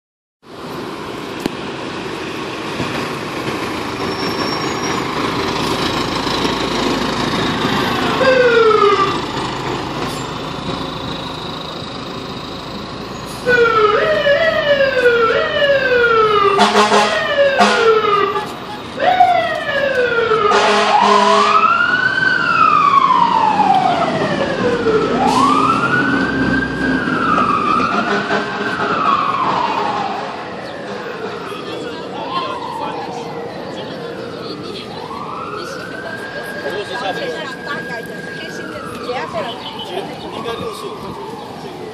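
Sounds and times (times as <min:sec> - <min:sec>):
diesel engine running: 0:00.8 - 0:21.6
fire engine siren: 0:02.1 - 0:41.9
air horn blasts: 0:16.5 - 0:18.5, 0:20.4 - 0:21.6.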